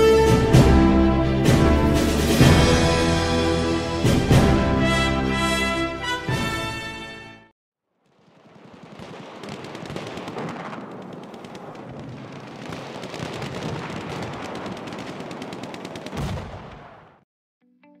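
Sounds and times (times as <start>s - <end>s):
machine-gun fire: 8.1s - 17.2s.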